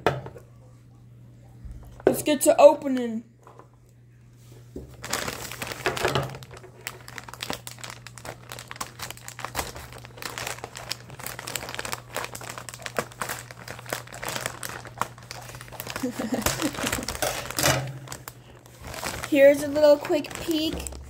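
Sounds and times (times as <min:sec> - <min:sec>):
plastic bag crinkling: 0:04.8 - 0:21.0.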